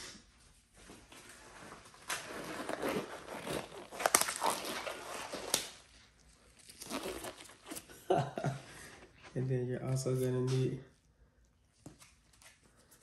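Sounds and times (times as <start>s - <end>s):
nitrile gloves rustling: 0.7s - 9.4s.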